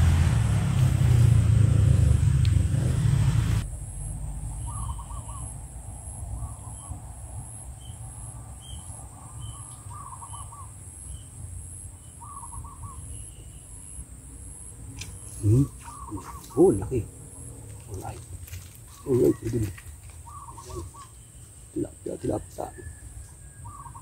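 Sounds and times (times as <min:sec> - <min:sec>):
low rumble: 0:00.0 - 0:08.6
bird trilling: 0:04.6 - 0:05.6, 0:08.6 - 0:11.2, 0:12.1 - 0:14.0, 0:15.0 - 0:24.0.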